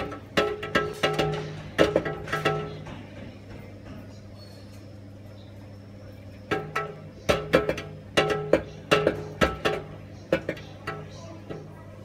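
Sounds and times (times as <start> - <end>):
plastic exercise wheel knocking: 0.0 - 3.2, 6.5 - 11.7
steady low hum: 0.0 - 12.0.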